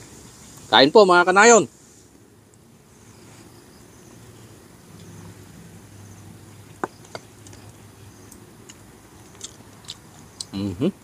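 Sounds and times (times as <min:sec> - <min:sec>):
quiet chewing of food: 0:06.5 - 0:10.6.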